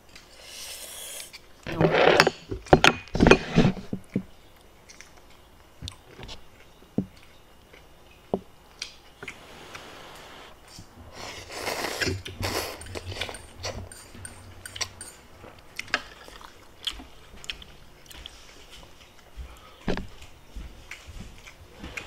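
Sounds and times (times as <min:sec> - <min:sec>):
person slurping noodles: 0:00.3 - 0:01.3, 0:11.1 - 0:13.3.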